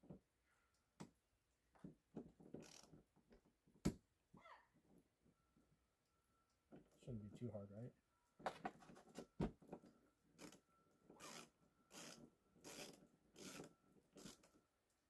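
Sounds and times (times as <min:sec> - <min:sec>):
ratchet wrench rasping: 0:11.2 - 0:14.5.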